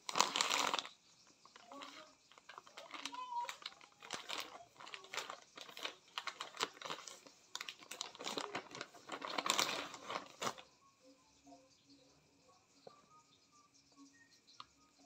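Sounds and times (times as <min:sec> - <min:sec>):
plastic packaging crinkling: 0:00.0 - 0:10.7.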